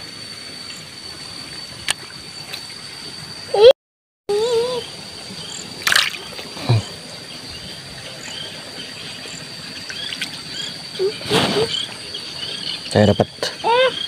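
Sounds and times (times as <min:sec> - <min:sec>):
high insect drone: 0:00.0 - 0:03.7, 0:04.3 - 0:14.0
hand splashing in shallow water: 0:05.8 - 0:06.6.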